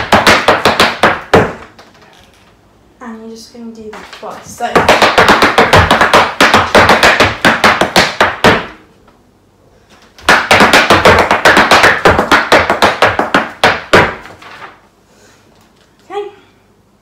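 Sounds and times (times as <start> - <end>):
hard shoes tapping on floor: 0.0 - 2.0, 3.8 - 8.8, 10.2 - 14.8.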